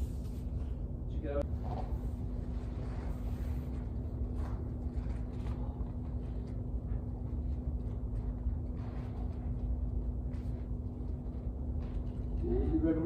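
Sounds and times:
constant low hum: 0:00.0 - 0:13.0
soft rustles: 0:01.6 - 0:13.0.

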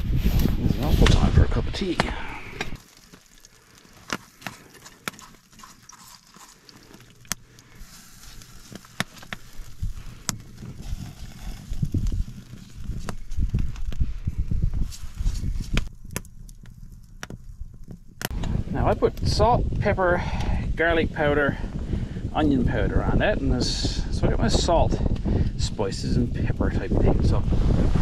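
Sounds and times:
wood fire crackling: 0:00.0 - 0:28.0
low rumble: 0:26.2 - 0:28.0.

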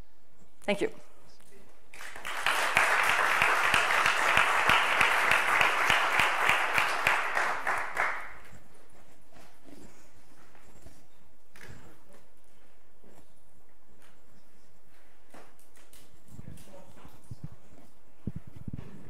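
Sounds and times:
audience applauding: 0:01.9 - 0:08.5.

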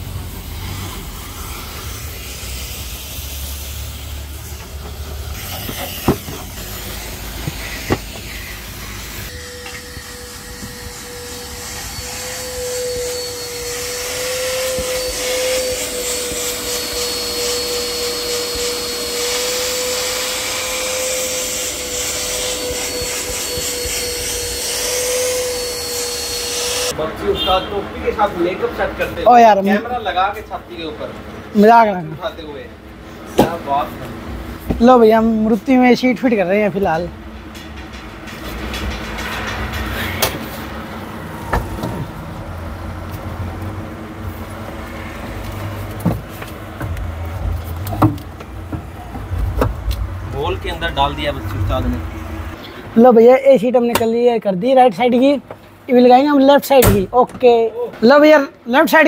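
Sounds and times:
vacuum cleaner running: 0:00.0 - 0:27.0, 0:39.2 - 0:52.6.

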